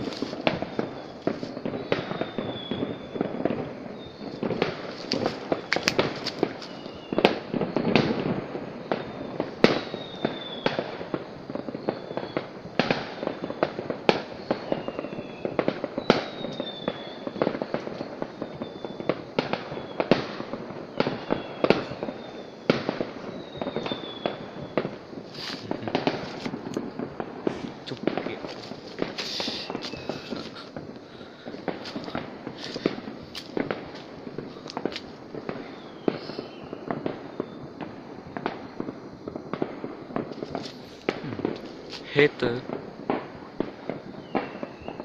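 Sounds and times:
firework whistles: 0:00.0 - 0:45.0
fireworks bangs and pops: 0:00.0 - 0:45.0.

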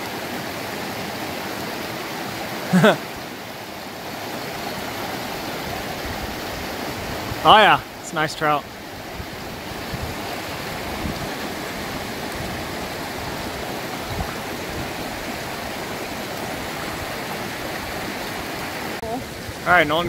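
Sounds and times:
river rushing over boulders: 0:00.0 - 0:20.0.

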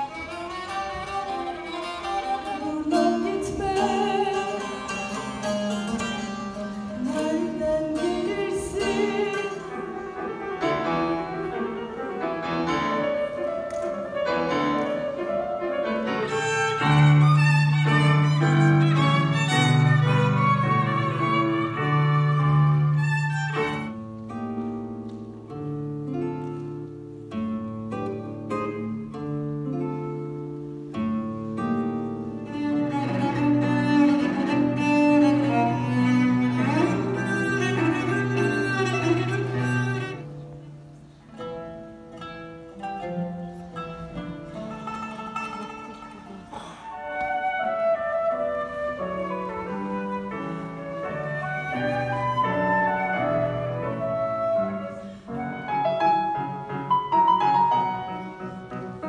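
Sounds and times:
bowed folk fiddle: 0:00.0 - 0:59.0
bowed strings: 0:00.0 - 0:59.0
piano: 0:00.0 - 0:59.0
plucked lute: 0:00.0 - 0:59.0.

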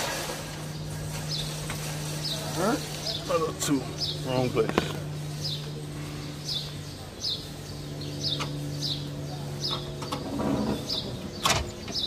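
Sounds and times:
bird chirping: 0:00.7 - 0:12.0.

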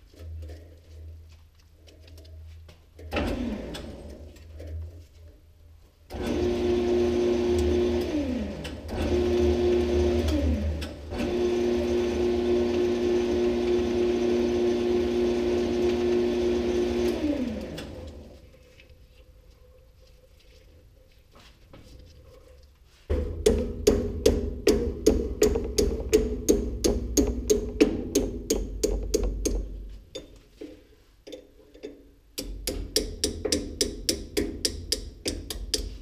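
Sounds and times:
lathe motor whining: 0:06.1 - 0:18.3.

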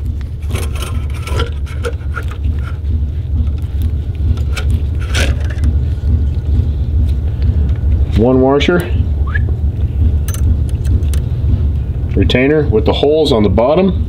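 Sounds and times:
steady low hum: 0:00.0 - 0:14.0
metal spring coils scraping: 0:00.4 - 0:02.8, 0:04.4 - 0:05.7.

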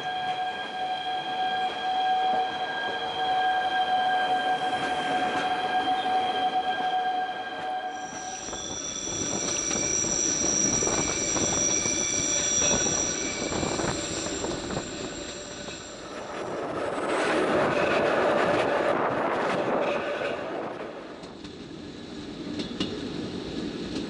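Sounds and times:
electric train whine: 0:00.0 - 0:24.0
wheel squeal: 0:07.9 - 0:16.3
rattling train wheels: 0:08.1 - 0:24.0.

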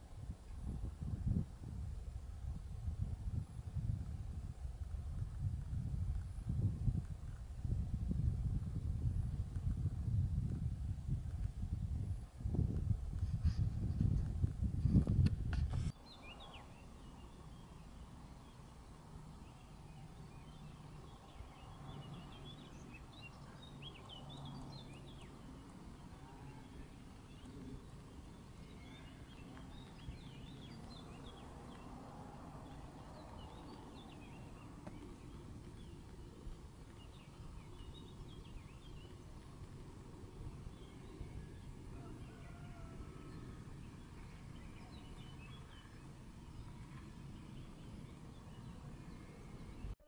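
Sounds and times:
low outdoor rumble: 0:00.0 - 0:50.0
small birds chirping: 0:15.8 - 0:50.0.

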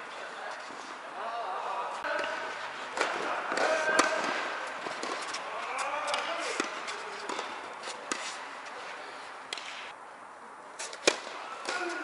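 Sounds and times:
players' voices in a hall: 0:00.0 - 0:12.0
tennis balls struck and bouncing: 0:02.0 - 0:08.8, 0:09.4 - 0:10.0, 0:10.8 - 0:12.0.

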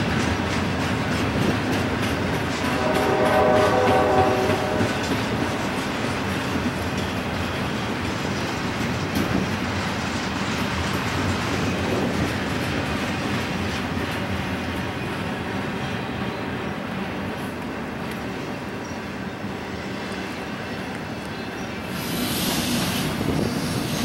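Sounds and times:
train wheels rumbling and clicking: 0:00.0 - 0:24.0
train horn: 0:02.5 - 0:06.0.

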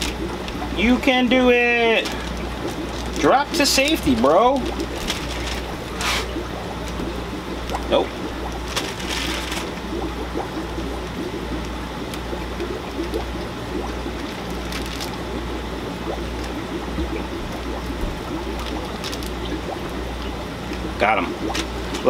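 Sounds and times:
air pump hum: 0:00.0 - 0:22.0
aquarium water bubbling: 0:00.0 - 0:22.0
plastic bag rustling: 0:01.8 - 0:07.0, 0:08.6 - 0:09.8, 0:14.2 - 0:15.3, 0:18.5 - 0:19.6.

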